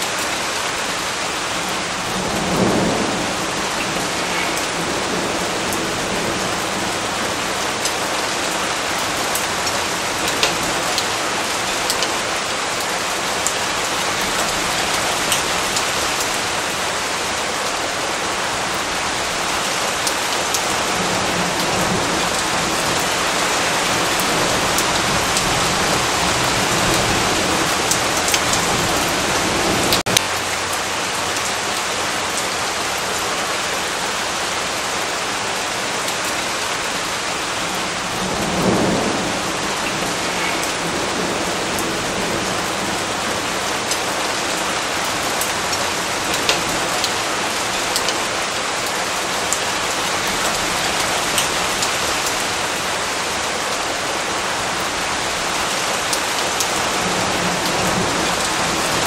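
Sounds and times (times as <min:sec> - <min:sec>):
steady rain: 0:00.0 - 0:59.0
low rumble of thunder: 0:01.9 - 0:09.3
raindrops ticking: 0:06.4 - 0:17.4, 0:21.6 - 0:29.0, 0:45.0 - 0:48.4.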